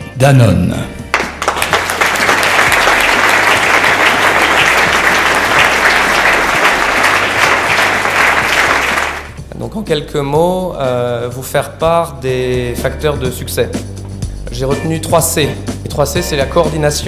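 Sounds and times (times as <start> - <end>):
audience applauding: 1.1 - 9.4.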